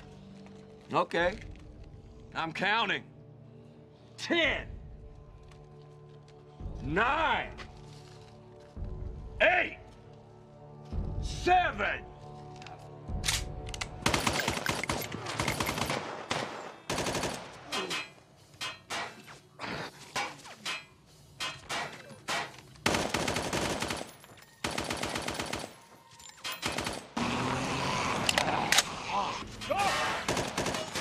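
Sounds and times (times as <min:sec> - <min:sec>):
automatic gunfire bursts: 0:14.0 - 0:17.5, 0:22.8 - 0:25.7, 0:30.3 - 0:31.0.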